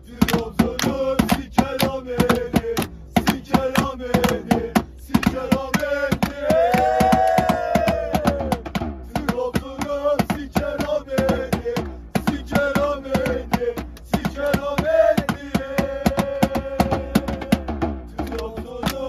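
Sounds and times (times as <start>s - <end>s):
music with percussion beat: 0.0s - 19.0s.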